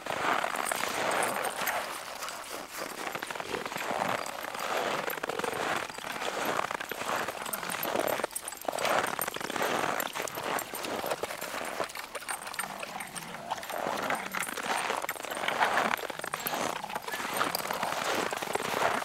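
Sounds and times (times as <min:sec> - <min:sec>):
footsteps crunching through snow: 0:00.0 - 0:19.0.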